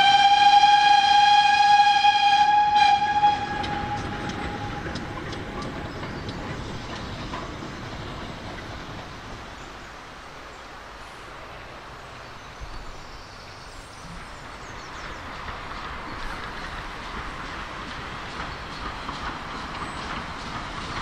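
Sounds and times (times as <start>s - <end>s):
steam locomotive whistle: 0.0s - 5.3s
train running: 0.0s - 21.0s.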